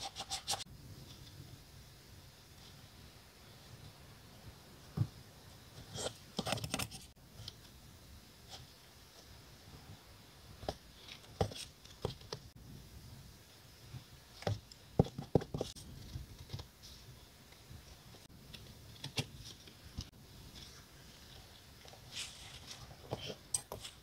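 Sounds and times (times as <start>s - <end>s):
desk items clicking and tapping: 14.4s - 15.7s.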